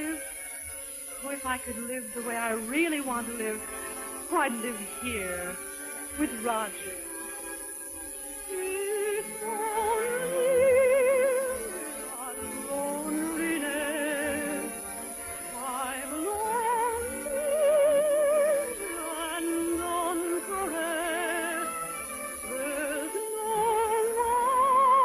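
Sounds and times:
soprano singing: 0.0s - 25.0s.

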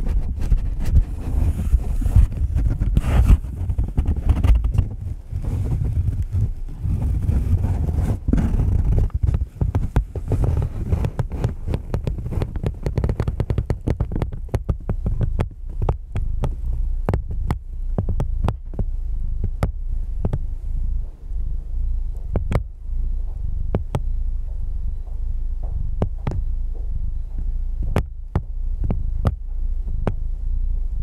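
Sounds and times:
cardboard box crackling: 0.0s - 16.0s
steady low sound: 0.0s - 31.0s.

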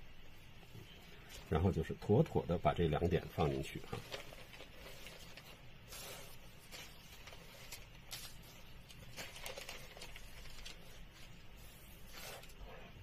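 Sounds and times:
low steady hum: 0.0s - 13.0s
brush swishing on paper: 3.9s - 13.0s.

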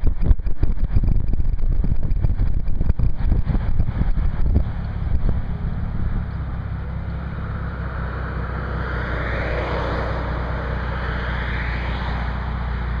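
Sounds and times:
car engine humming: 0.0s - 13.0s
passing cars tyre noise: 0.0s - 13.0s.

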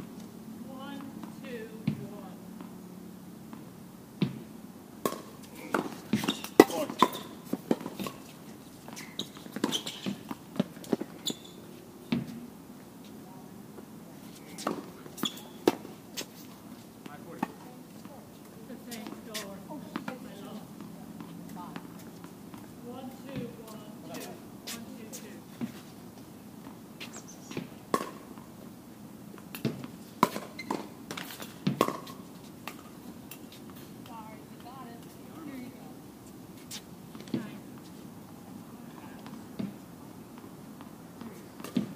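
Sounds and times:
tennis balls struck and bouncing: 0.9s - 2.7s, 3.5s - 11.1s, 12.1s - 12.5s, 14.5s - 16.3s, 17.0s - 18.2s, 18.8s - 25.8s, 27.5s - 28.5s, 29.4s - 35.1s, 38.9s - 41.9s
shoe squeaks: 5.6s - 7.4s, 8.9s - 10.3s, 11.1s - 11.7s, 14.4s - 15.6s, 27.0s - 27.7s, 30.4s - 30.9s.

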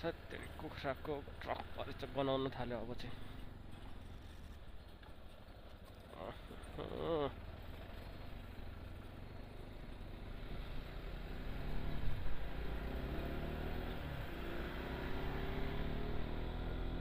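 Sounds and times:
road rumble: 0.0s - 17.0s
vehicle engine accelerating: 6.2s - 17.0s.

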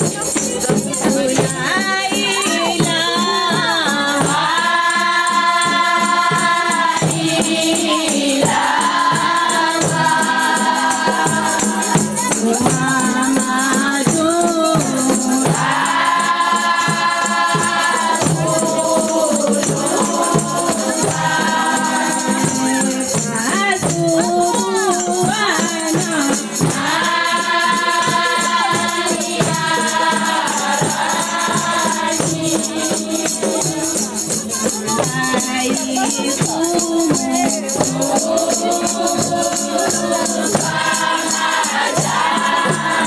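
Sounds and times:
rattling hand percussion: 0.0s - 43.0s
women's choir chanting: 0.6s - 34.2s, 34.9s - 43.0s.

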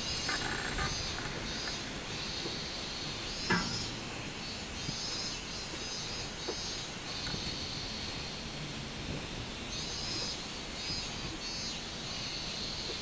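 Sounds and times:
cicadas singing: 0.0s - 13.0s
sharp knock: 3.5s - 3.9s.

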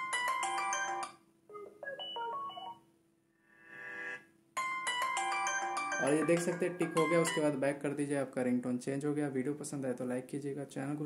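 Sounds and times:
phone ringtone chiming melodies: 0.0s - 2.8s, 4.6s - 7.6s.

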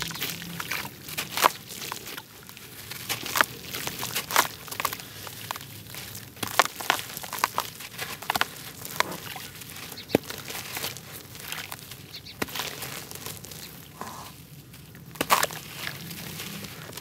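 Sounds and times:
dry dirt crunching and crumbling: 0.0s - 17.0s
sharp cracks of dirt: 0.0s - 17.0s.

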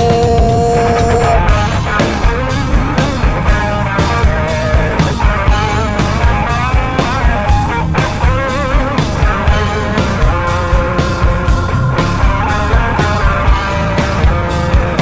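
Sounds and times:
wavering melodic line: 0.0s - 1.8s
drums beating: 0.0s - 15.0s
electric guitar: 0.0s - 15.0s.

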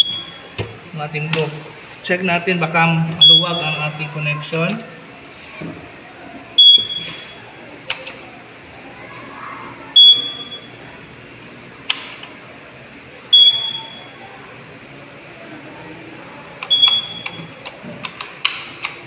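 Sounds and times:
alarm panel beeping: 0.0s - 0.6s, 3.2s - 4.1s, 6.6s - 7.4s, 10.0s - 10.8s, 13.3s - 14.2s, 16.7s - 17.6s.

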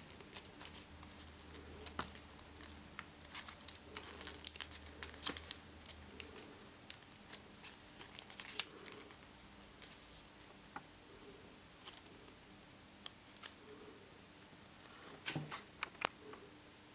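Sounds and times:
paper crinkling and crackling: 0.0s - 10.6s, 11.2s - 12.2s, 13.0s - 13.6s.

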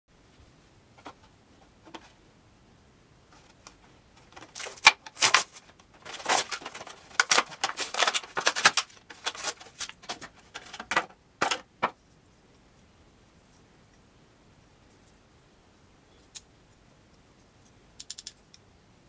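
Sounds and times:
plastic packaging crinkling: 4.2s - 11.7s.

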